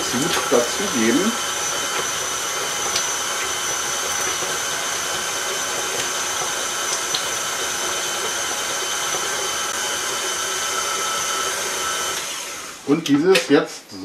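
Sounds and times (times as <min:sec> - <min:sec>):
stand mixer whirring: 0:00.0 - 0:12.9.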